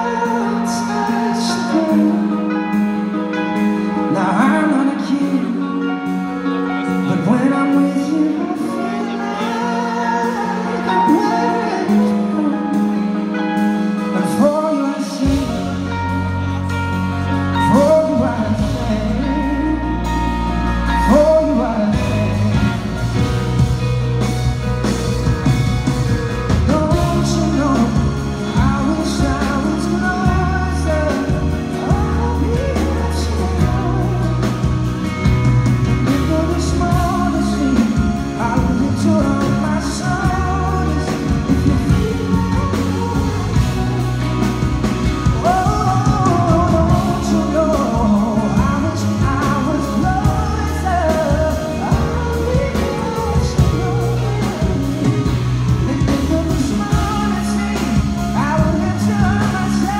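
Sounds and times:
electric guitars: 0.0 - 59.9
wordless singing: 6.9 - 16.7, 26.6 - 35.2, 36.0 - 59.9
deep bass: 15.3 - 59.9.

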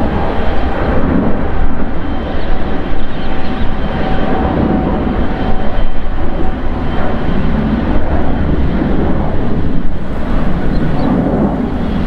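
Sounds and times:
jet engines rumbling: 0.0 - 12.0.

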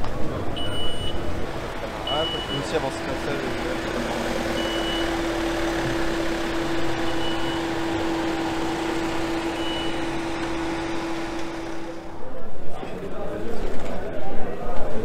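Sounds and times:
van engine running: 0.0 - 12.3
short high beeps: 0.6 - 1.2, 7.0 - 7.8, 9.5 - 10.2.

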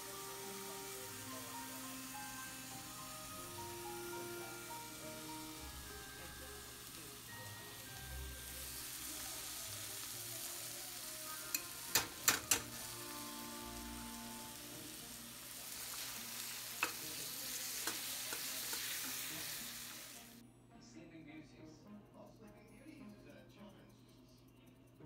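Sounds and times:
vegetables sizzling in a skillet: 0.0 - 20.4
spatula stirring: 15.7 - 19.9.

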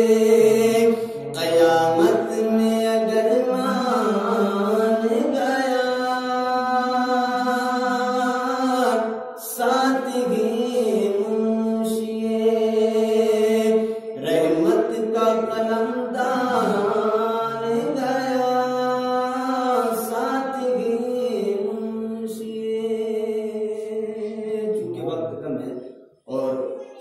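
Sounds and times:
man chanting: 0.0 - 27.0.

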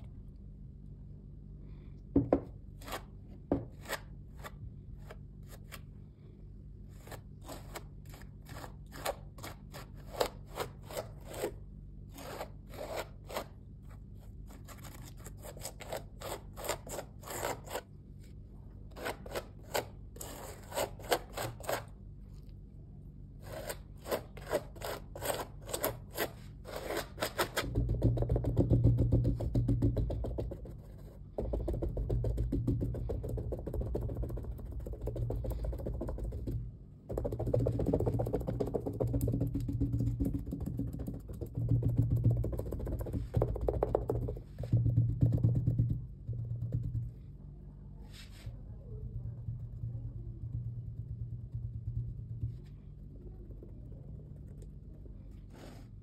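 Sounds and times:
palette knife scraping paste on canvas: 2.8 - 5.8, 6.9 - 17.9, 18.9 - 22.0, 23.4 - 27.7, 55.4 - 56.0.

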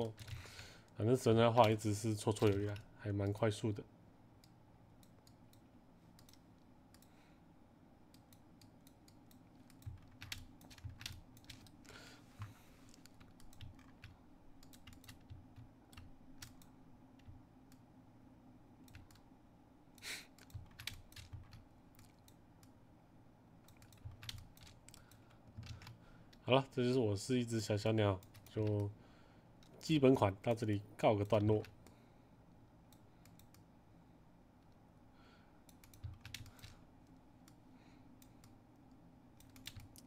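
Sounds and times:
low steady hum: 0.0 - 40.0
keyboard and mouse clicks: 1.5 - 2.9, 4.4 - 7.2, 8.1 - 11.8, 12.4 - 17.8, 18.8 - 19.3, 20.0 - 22.8, 23.6 - 26.4, 32.9 - 33.7, 35.7 - 37.6, 38.2 - 40.0.

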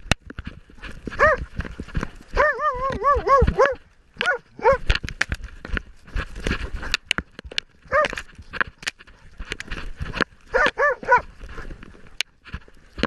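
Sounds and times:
brush scraping against camera: 0.3 - 13.0
dog barking: 1.2 - 1.4, 2.4 - 4.8, 7.9 - 8.2, 10.5 - 11.3.

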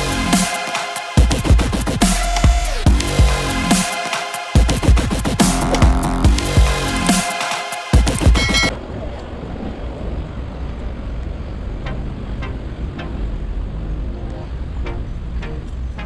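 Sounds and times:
electronic intro music: 0.0 - 8.7, 11.7 - 16.0
city ambience: 5.3 - 16.0.

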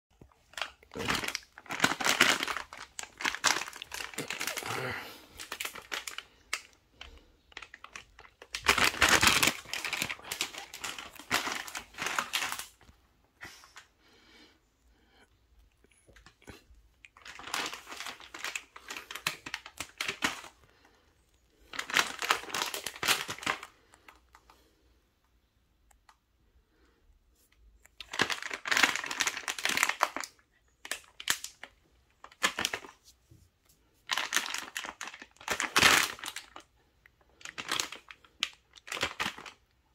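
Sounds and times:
dog chewing plastic pouch: 0.4 - 4.6, 7.6 - 12.8.

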